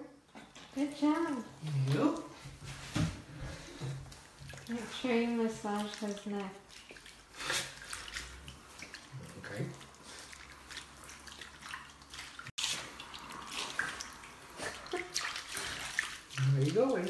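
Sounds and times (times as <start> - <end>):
bathwater sloshing and splashing: 0.4 - 17.0
water dripping: 3.7 - 17.0.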